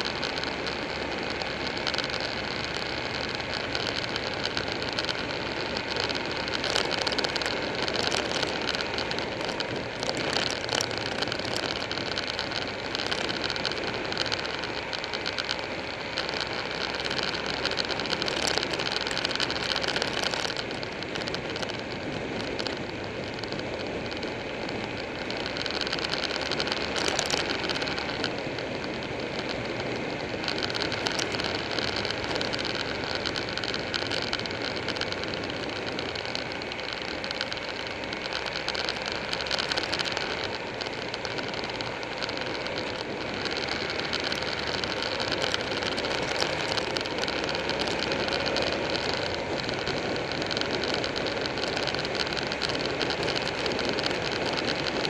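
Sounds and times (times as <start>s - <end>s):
motorcycle engine: 0.0s - 55.0s
road noise: 0.0s - 55.0s
wind rushing over microphone: 0.0s - 55.0s.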